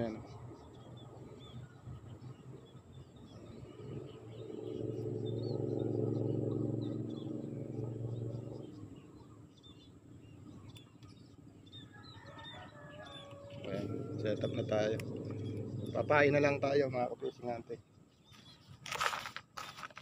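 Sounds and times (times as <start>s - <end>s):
small birds chirping: 0.0s - 20.0s
passing vehicle engine: 2.0s - 10.6s, 12.4s - 17.6s.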